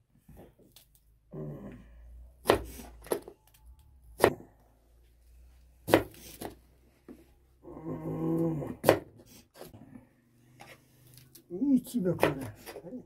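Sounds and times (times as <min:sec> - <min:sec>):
knife chopping on wooden board: 0:02.4 - 0:02.8, 0:05.8 - 0:06.6.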